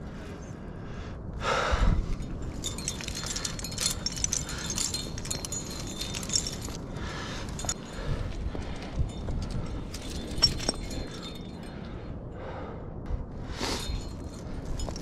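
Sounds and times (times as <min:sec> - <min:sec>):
metal climbing gear clinking: 0:02.1 - 0:12.3, 0:13.6 - 0:15.0.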